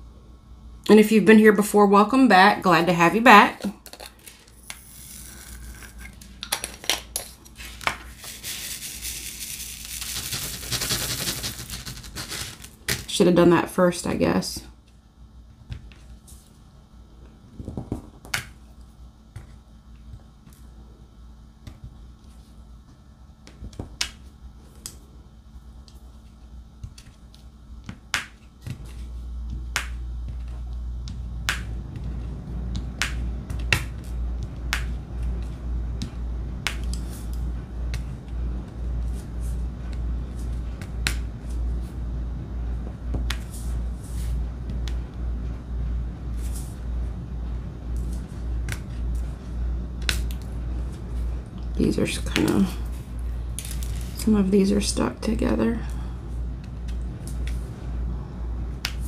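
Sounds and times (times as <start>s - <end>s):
pulsing low hum: 14.7s - 59.0s.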